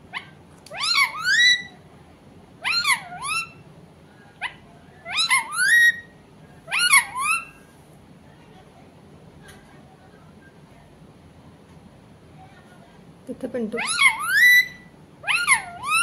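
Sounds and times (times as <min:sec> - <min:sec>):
parakeet calling: 0:00.1 - 0:01.8, 0:02.6 - 0:03.7, 0:04.4 - 0:07.6, 0:13.7 - 0:16.0.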